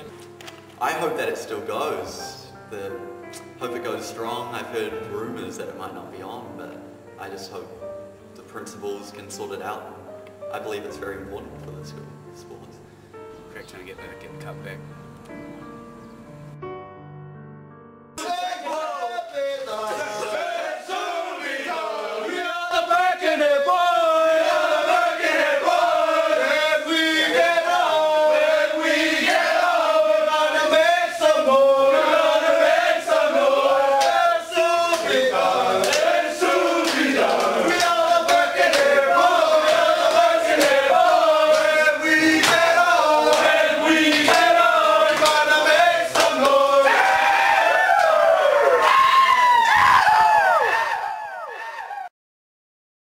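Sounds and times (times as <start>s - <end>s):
men singing and chanting: 18.2s - 47.7s.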